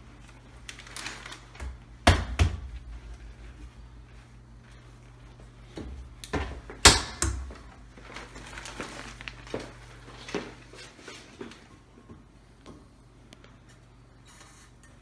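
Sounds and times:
plastic bag rustling: 0.0 - 2.0, 7.5 - 11.7.

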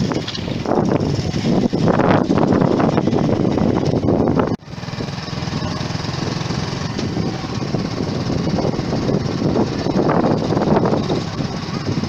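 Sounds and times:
small motorcycle engine putter: 0.0 - 3.0
rushing noise: 0.0 - 12.0.

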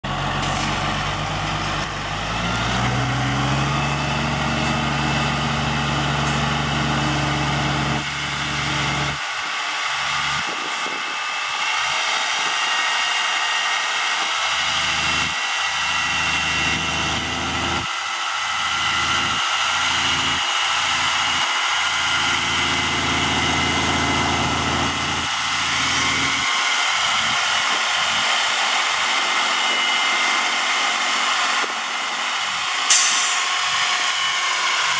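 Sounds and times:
diesel truck engine: 0.0 - 34.9
water jetting hiss: 32.9 - 33.5.

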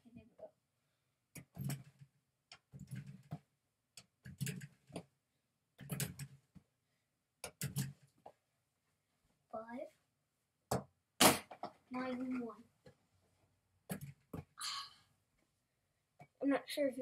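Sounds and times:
rubber toy knocking on hoop and wall: 10.7 - 11.8.

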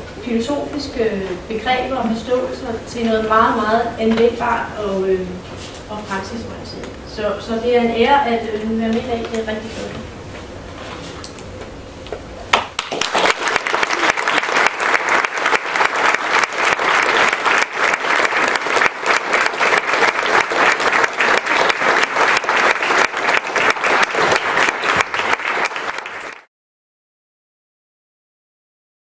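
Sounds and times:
audience applauding: 12.5 - 26.5.

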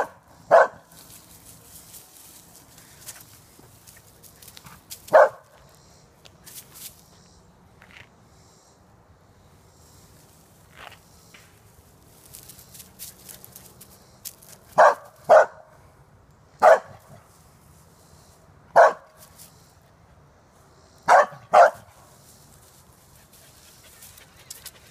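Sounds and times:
dog barking: 0.0 - 0.9, 5.1 - 5.5, 14.8 - 15.7, 16.6 - 17.0, 18.8 - 19.1, 21.1 - 21.9
dry leaves crackling underfoot: 0.8 - 7.1, 10.2 - 15.3, 21.8 - 24.8.

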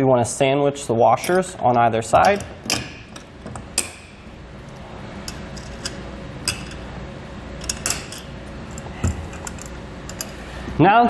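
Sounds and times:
steady low hum: 0.0 - 11.0
metallic clicks of bolt and washers: 2.1 - 4.2, 7.6 - 10.4.

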